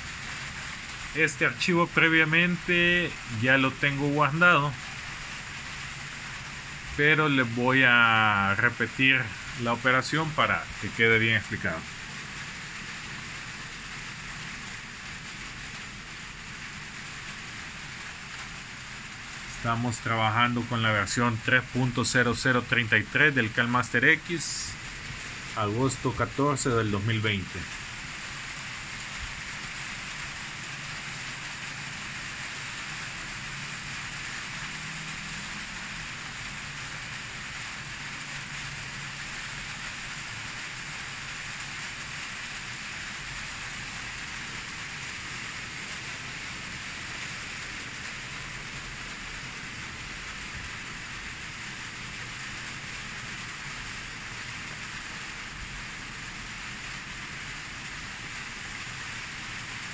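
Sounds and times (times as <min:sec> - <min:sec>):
background hiss: 0:00.0 - 0:59.9.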